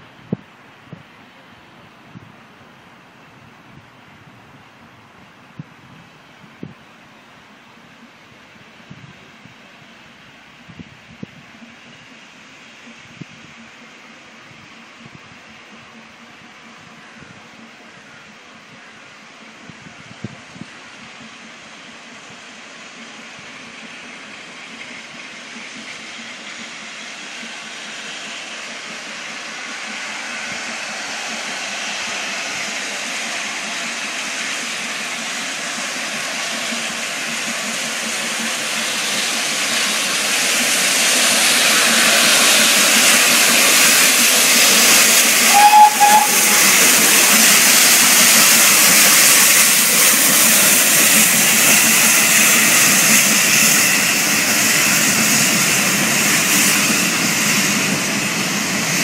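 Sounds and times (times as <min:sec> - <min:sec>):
steam train running: 0:00.0 - 0:59.0
steam whistle blast: 0:44.8 - 0:48.2.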